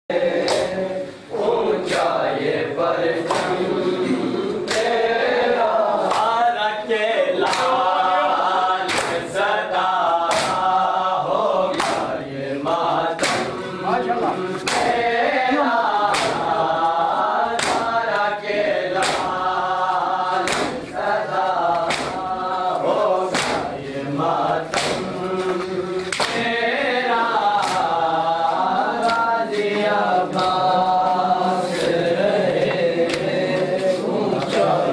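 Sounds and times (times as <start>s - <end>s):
men chanting in unison: 0.1s - 34.9s
hands slapping chests: 0.4s - 0.8s, 1.8s - 2.2s, 3.2s - 3.8s, 4.6s - 5.0s, 6.0s - 6.4s, 7.4s - 7.9s, 8.8s - 9.4s, 10.1s - 10.9s, 11.7s - 12.2s, 13.1s - 13.7s, 14.5s - 18.3s, 18.9s - 26.6s, 27.4s - 34.9s.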